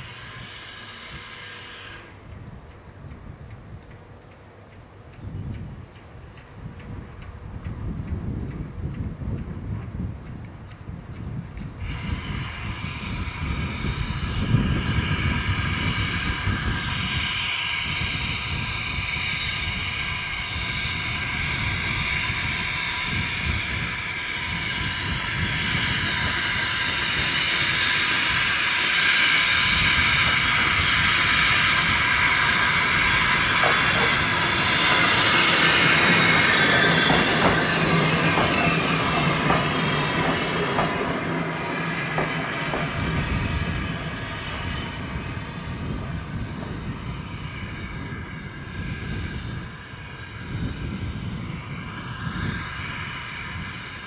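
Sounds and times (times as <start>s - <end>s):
steam locomotive running past: 0.0s - 54.0s
wheels clicking over rail joints: 30.0s - 44.7s.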